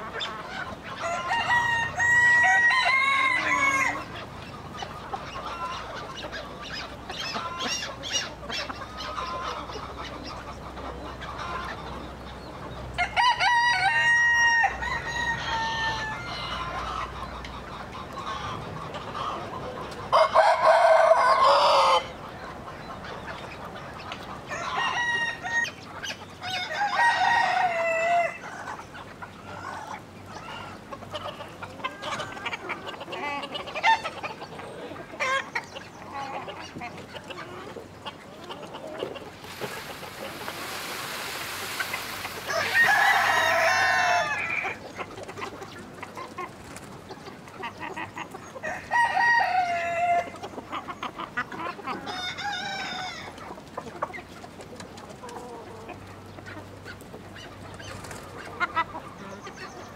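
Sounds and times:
chickens clucking: 0:00.0 - 0:59.9
rooster crowing: 0:01.0 - 0:04.0, 0:13.0 - 0:16.6, 0:20.1 - 0:22.1, 0:42.4 - 0:44.6, 0:48.6 - 0:50.3
steady hiss: 0:39.4 - 0:42.9.

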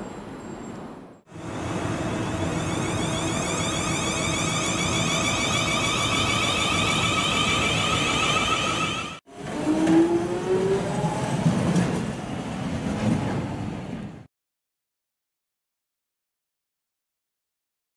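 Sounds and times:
underground train whine: 0:00.0 - 0:14.3
steady droning hum: 0:01.4 - 0:09.2.

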